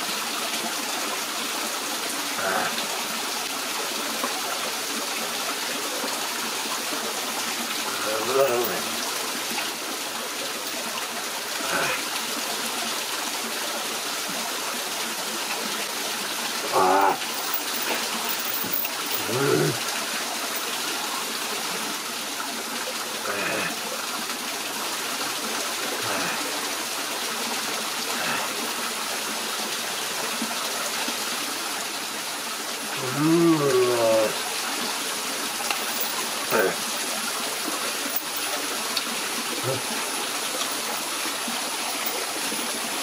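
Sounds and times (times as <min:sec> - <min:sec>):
waterfall running over rocks: 0:00.0 - 0:43.0.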